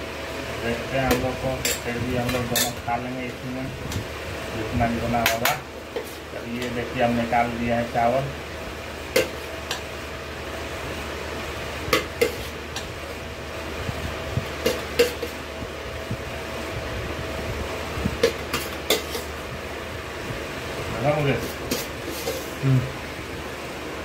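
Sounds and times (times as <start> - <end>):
spoon scraping metal pot: 18.2 - 19.3, 21.4 - 22.6.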